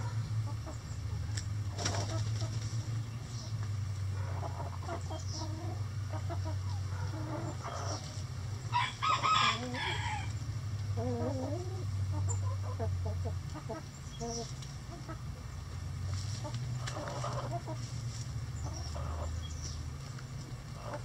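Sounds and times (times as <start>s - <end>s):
hens clucking: 0.0s - 21.0s
low steady hum: 0.0s - 21.0s
rooster crowing: 8.7s - 10.4s.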